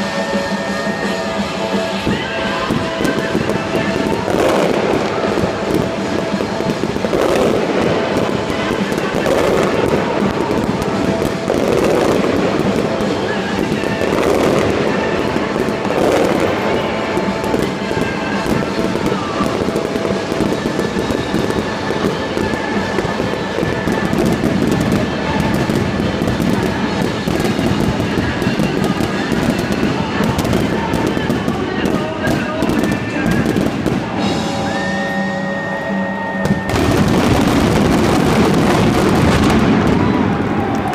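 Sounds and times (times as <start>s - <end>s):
fireworks booming and crackling: 0.0s - 40.9s.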